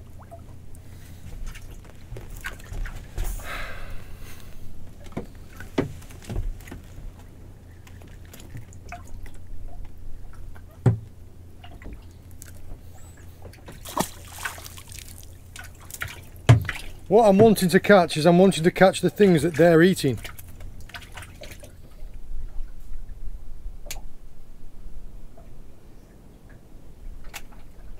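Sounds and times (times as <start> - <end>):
water lapping against boat hull: 0.0 - 24.2, 25.3 - 27.9.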